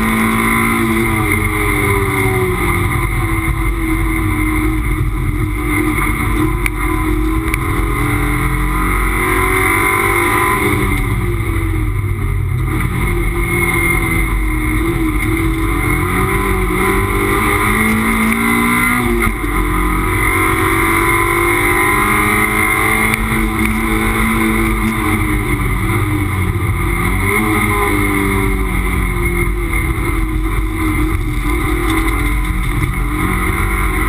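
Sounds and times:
race car engine revving: 0.0 - 34.0
road and wind noise: 0.0 - 34.0.

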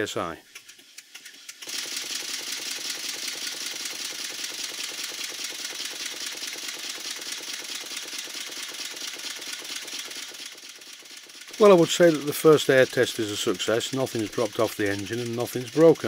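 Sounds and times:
model steam engine exhaust beat: 0.0 - 16.0.

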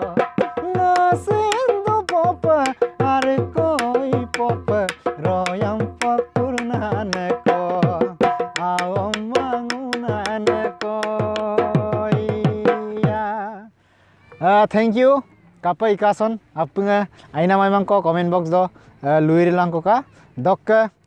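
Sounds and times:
barrel drum beating: 0.0 - 13.4
man singing: 0.0 - 14.6.

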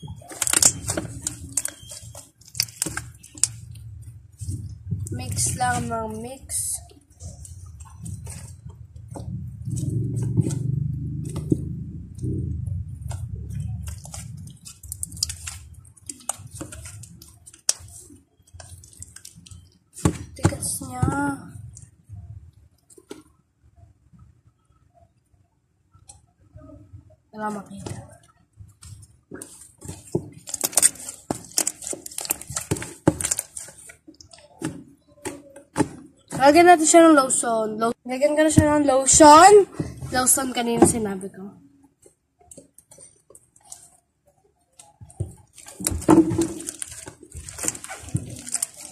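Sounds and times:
slime squishing and popping: 0.0 - 3.8, 13.0 - 21.3
low rumble: 8.3 - 14.6.

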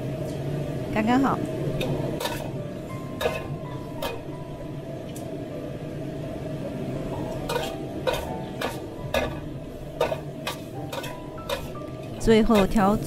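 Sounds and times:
beans sizzling: 1.0 - 5.3, 6.8 - 13.0
metal spatula scraping a wok: 2.2 - 2.6, 7.5 - 11.8.

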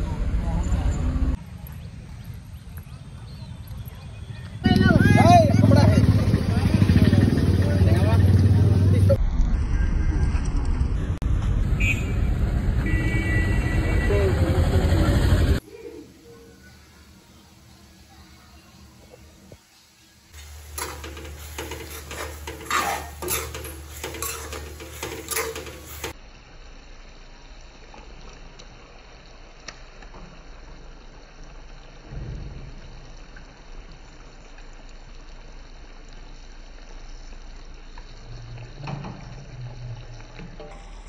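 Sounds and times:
splashing and clattering in steel bowl: 20.4 - 26.2
low thump: 32.1 - 33.0.

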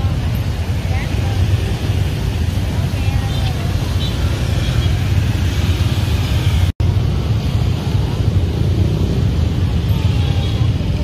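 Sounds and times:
motorbike traffic rumble: 0.0 - 11.0.

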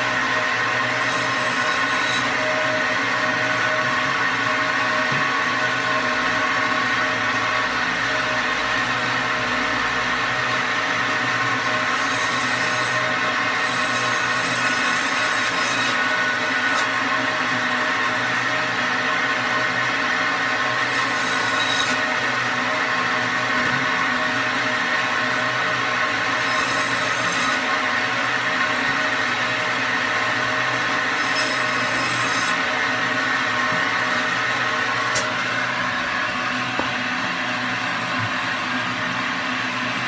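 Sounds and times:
band saw humming: 24.0 - 39.9.

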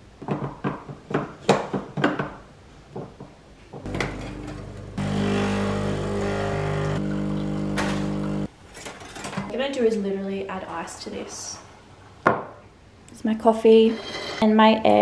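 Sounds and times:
espresso machine pump humming: 3.9 - 8.5.

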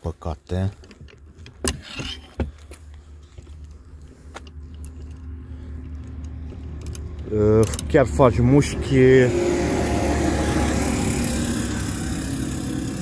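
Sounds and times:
vehicle engine running: 2.5 - 13.0.

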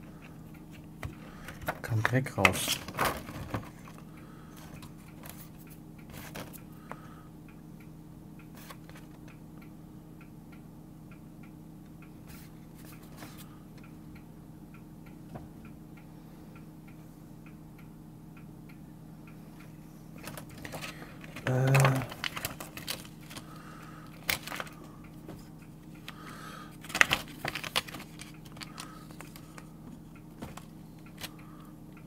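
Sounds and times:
low steady hum: 0.0 - 32.0
keyboard parts clicking and rustling: 1.0 - 4.0, 4.6 - 6.6, 20.2 - 25.4, 26.8 - 31.4.

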